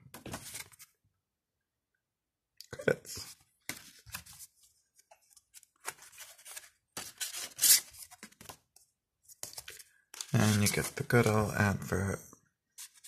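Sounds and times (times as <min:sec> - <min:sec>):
paper booklet pages rustling: 0:00.2 - 0:00.9, 0:03.2 - 0:11.5, 0:12.7 - 0:13.0.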